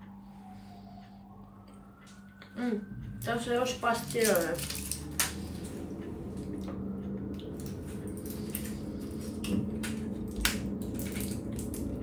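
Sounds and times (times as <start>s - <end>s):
steady low hum: 0.0s - 12.0s
foil blister pack crinkling: 4.0s - 5.4s, 8.1s - 12.0s.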